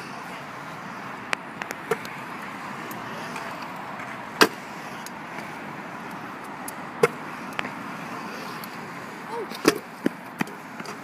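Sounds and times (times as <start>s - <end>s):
scooter wheels rolling on concrete: 0.0s - 11.0s
scooter clacking: 8.5s - 11.0s.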